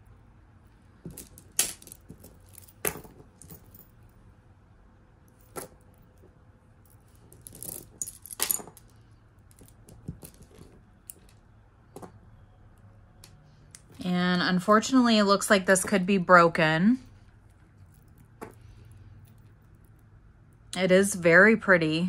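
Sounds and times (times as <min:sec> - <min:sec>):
jewelry clinking and jingling: 0:01.0 - 0:04.2, 0:05.2 - 0:11.4, 0:17.2 - 0:20.7.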